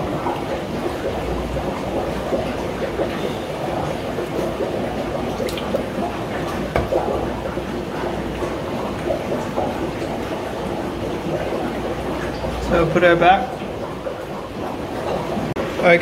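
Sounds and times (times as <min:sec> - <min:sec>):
rushing bubbling aquarium water: 0:00.0 - 0:16.0
small water splashes and drips: 0:00.0 - 0:16.0.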